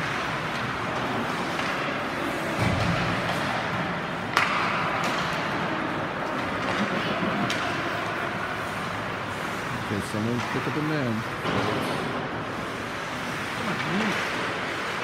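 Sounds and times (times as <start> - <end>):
puck cracking on stick: 0.0 - 8.8
crowd noise: 0.0 - 15.0.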